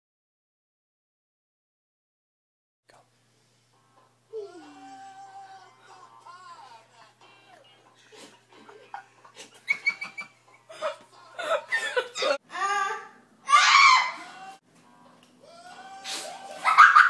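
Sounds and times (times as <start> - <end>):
child giggling and laughing: 8.1 - 13.2, 16.4 - 17.0.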